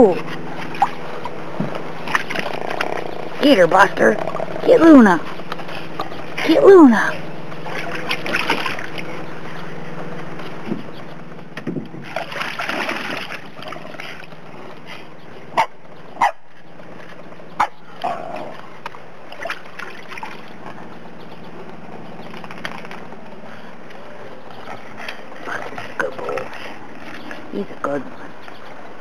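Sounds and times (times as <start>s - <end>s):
dog splashing water: 7.6s - 9.2s, 12.0s - 14.5s, 19.2s - 20.8s.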